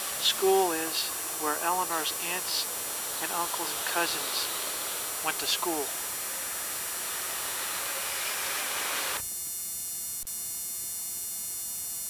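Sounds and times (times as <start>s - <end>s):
steady hiss: 0.0s - 9.2s.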